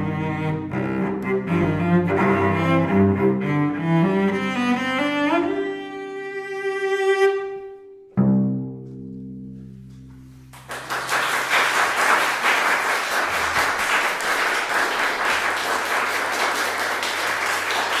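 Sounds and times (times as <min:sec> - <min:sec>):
cello chord ringing: 0:05.6 - 0:10.5
audience applause: 0:10.5 - 0:18.0.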